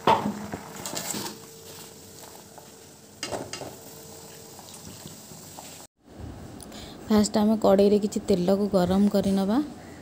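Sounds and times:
kitchen background hiss: 0.0 - 5.9.

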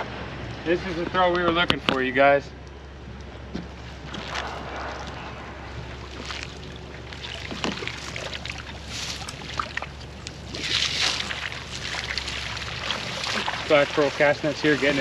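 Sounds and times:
water splashing off net: 5.8 - 15.0.

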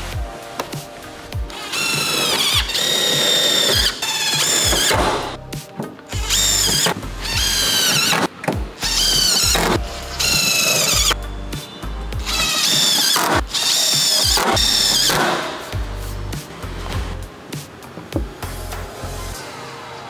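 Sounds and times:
power drill motor whine: 1.5 - 5.3, 6.2 - 11.2, 12.2 - 15.4.

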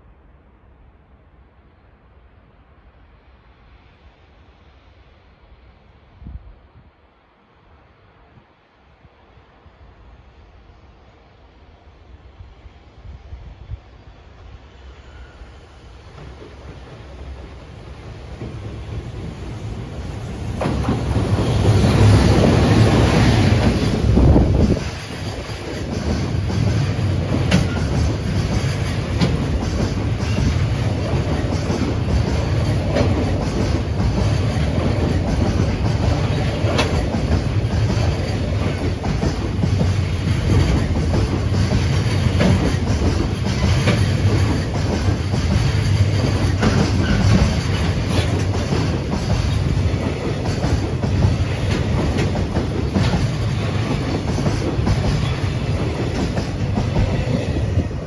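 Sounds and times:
freight train passing: 0.0 - 58.0
wheels clicking over rail joints: 20.5 - 58.0.

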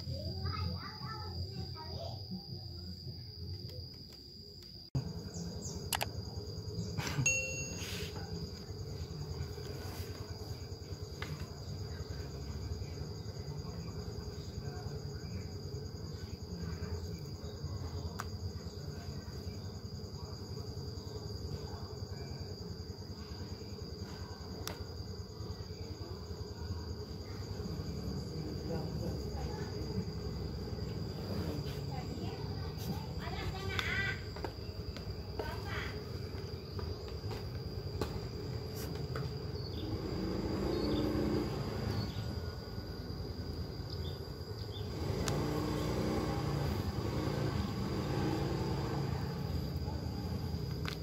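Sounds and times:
crickets chirring: 0.0 - 51.0
notification ding: 7.3 - 8.1.

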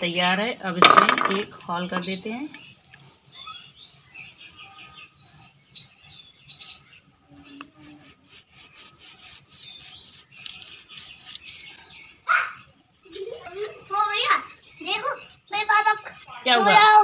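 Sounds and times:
birds chirping: 0.0 - 17.0
tool rubbing in wet cement: 7.6 - 11.8.

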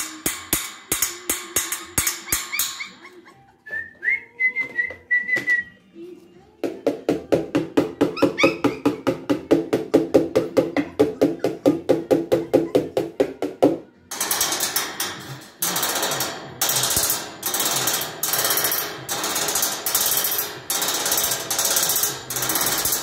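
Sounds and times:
whistled melody: 3.6 - 5.8.

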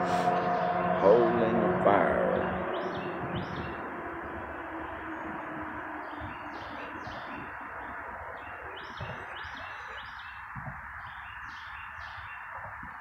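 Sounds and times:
songbird chirping: 0.0 - 13.0.

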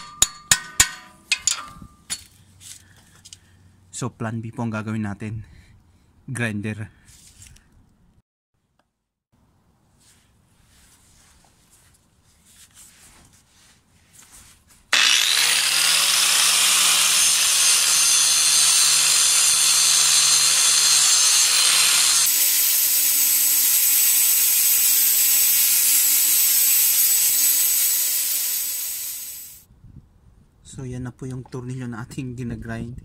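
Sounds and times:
angle grinder grinding metal: 15.0 - 29.6.

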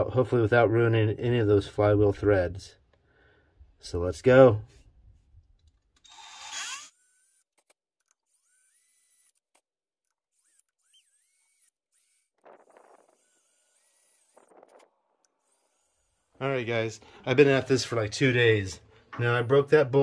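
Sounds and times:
cordless drill whining: 5.9 - 16.4.

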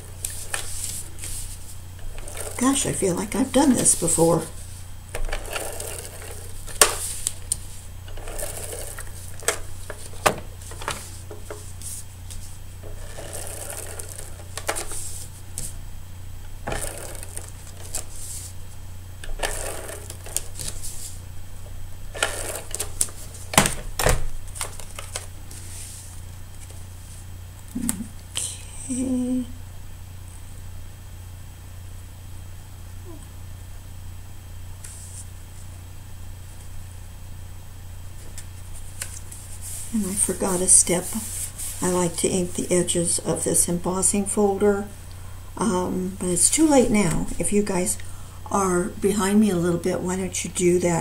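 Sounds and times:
tape runner scratchy strokes: 0.0 - 15.8, 16.6 - 21.2, 38.6 - 42.2.

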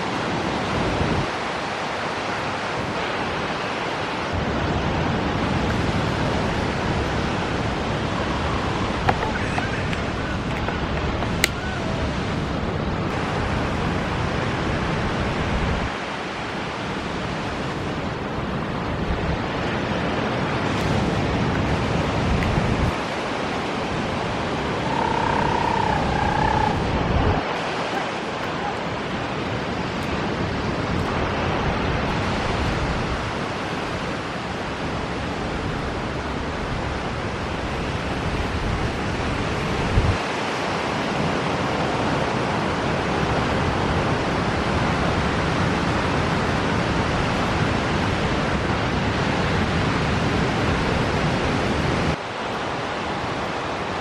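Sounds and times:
ocean surf: 0.0 - 54.0
wind rushing: 19.0 - 33.4.

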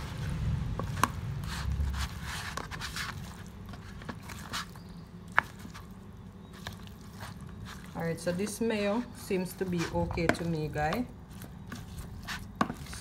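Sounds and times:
wet squishing and rustling: 0.0 - 13.0.

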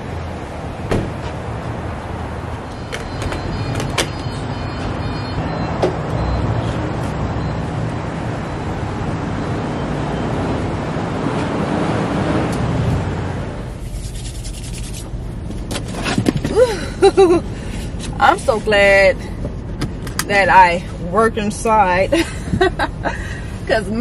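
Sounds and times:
traffic hum: 0.0 - 24.0
high beeps: 2.7 - 7.8.

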